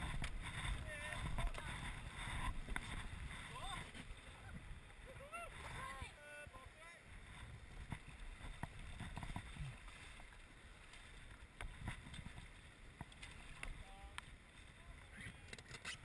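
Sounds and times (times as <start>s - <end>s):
wind on microphone: 0.0s - 6.2s
rushing river water: 0.0s - 15.8s
paddles splashing: 0.0s - 16.0s
paddles knocking against raft: 7.2s - 10.3s.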